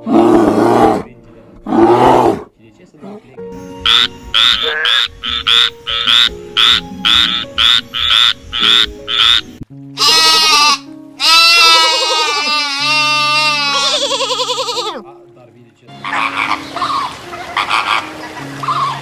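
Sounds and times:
frog croaking: 3.8s - 15.0s, 16.0s - 19.0s
goat bleating: 10.0s - 15.0s.

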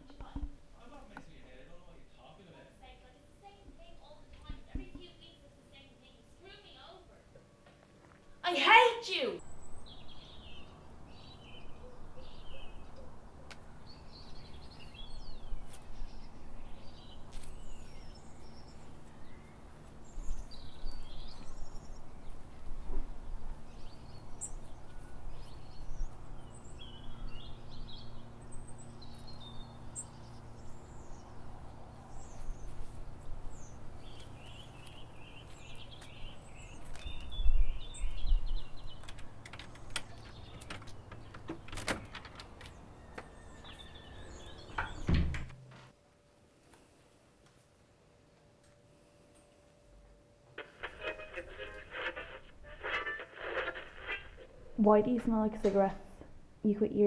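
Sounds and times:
small birds chirping: 8.2s - 45.5s
low outdoor rumble: 49.7s - 57.0s.

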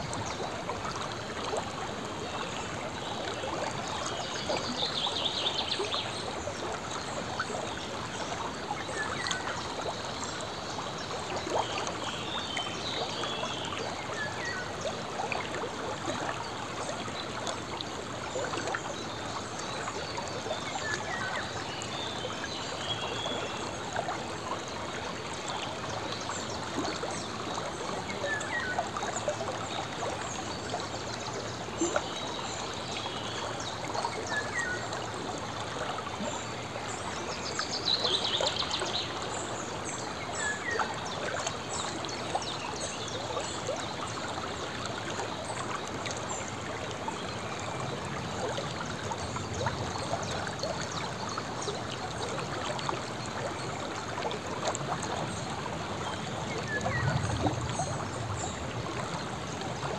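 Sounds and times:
river babbling over stones: 0.0s - 59.9s.

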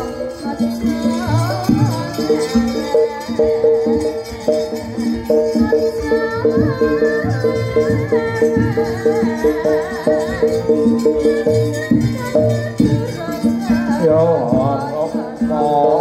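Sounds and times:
gamelan music: 0.0s - 16.0s.

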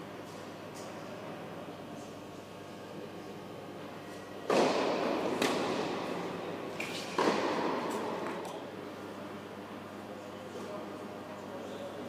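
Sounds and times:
tennis ball hit by racket: 4.5s - 8.6s.

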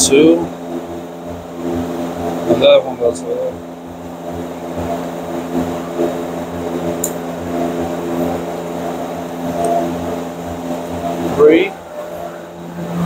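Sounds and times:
steady mechanical drone: 0.0s - 13.0s
sharp click: 7.0s - 7.2s.

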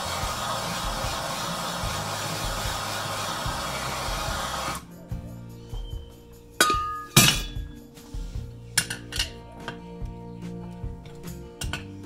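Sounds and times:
gas torch hissing: 0.0s - 4.9s
sharp metallic clink: 6.6s - 7.8s.

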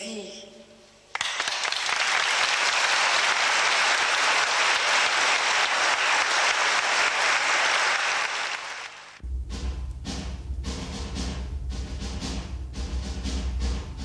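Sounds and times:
audience applauding: 1.1s - 9.2s.

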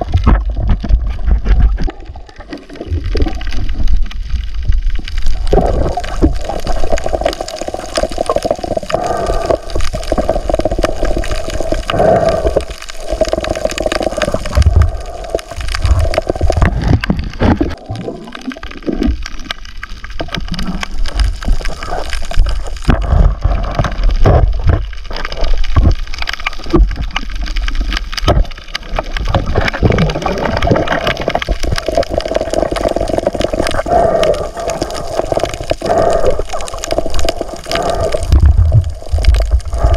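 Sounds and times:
water sloshing and gurgling underwater: 0.0s - 39.9s.

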